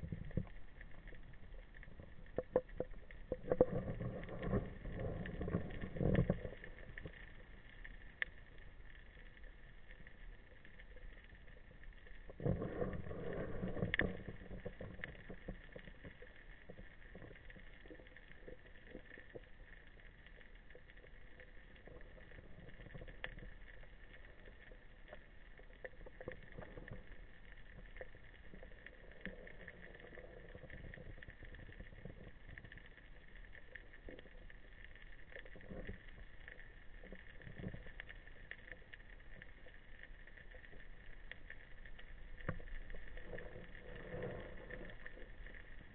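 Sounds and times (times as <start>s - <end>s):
faint clicks: 0.0s - 45.9s.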